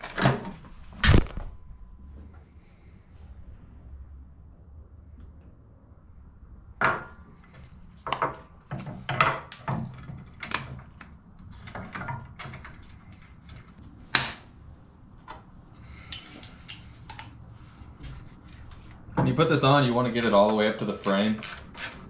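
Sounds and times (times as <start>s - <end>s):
metal bolts and tools clinking: 16.0s - 17.3s.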